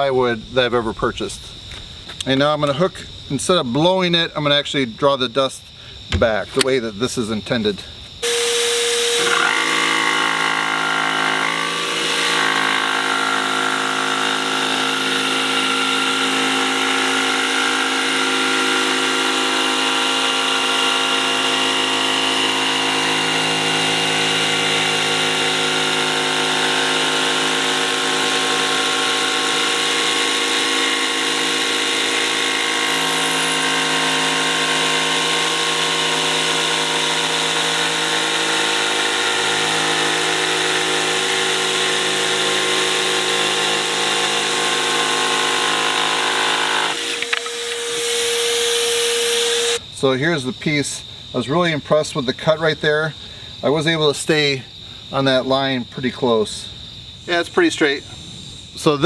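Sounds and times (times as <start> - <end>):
jigsaw cutting plywood: 8.2 - 49.8.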